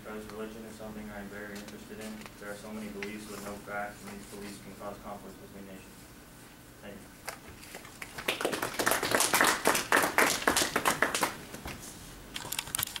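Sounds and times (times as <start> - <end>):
audience applauding: 8.0 - 11.4.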